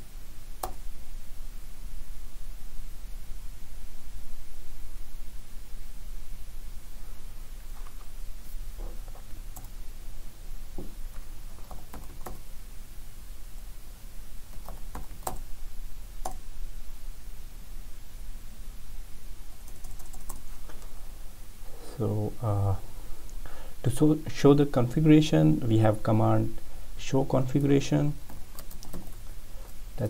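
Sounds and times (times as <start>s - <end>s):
steady low hum: 0.0s - 30.0s
computer keyboard taps: 11.6s - 12.4s, 14.6s - 15.4s.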